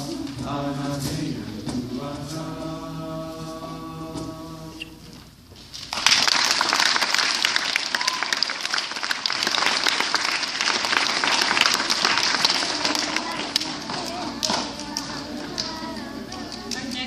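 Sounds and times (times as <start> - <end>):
children applauding: 5.9 - 17.0.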